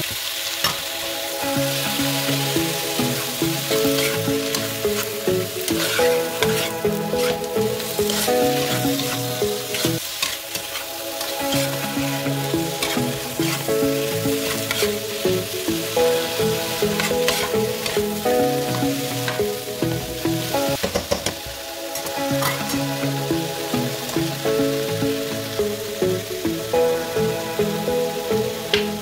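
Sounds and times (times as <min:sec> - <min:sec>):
background music: 0:00.0 - 0:29.0
food sizzling in a pan: 0:00.0 - 0:29.0
metal spoon scraping a pan: 0:03.7 - 0:11.9, 0:12.7 - 0:15.4, 0:16.8 - 0:19.4.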